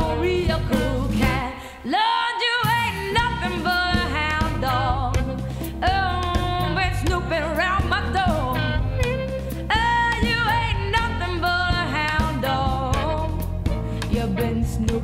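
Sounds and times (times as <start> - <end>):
blues-rock band music: 2.7 - 15.0.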